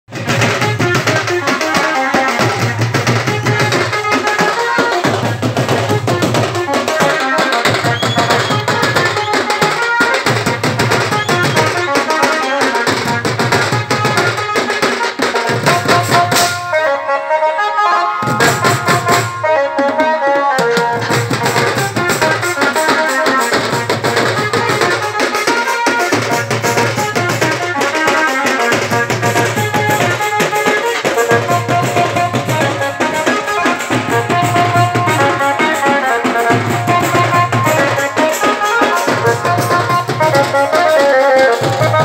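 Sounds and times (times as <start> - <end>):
drum band playing: 0.1 - 17.1, 18.2 - 42.0
melody line over drums: 31.3 - 42.0.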